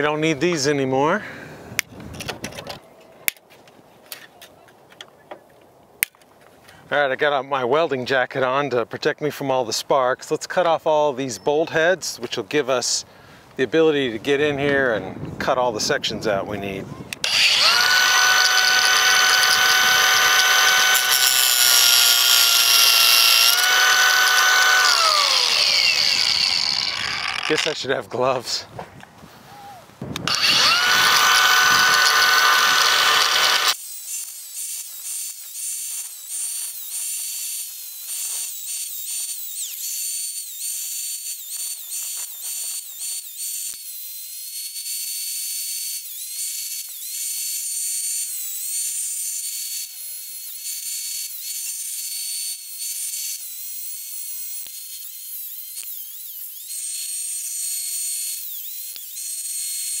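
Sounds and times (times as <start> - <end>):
angle grinder cutting bolts: 17.2 - 28.0, 30.2 - 60.0.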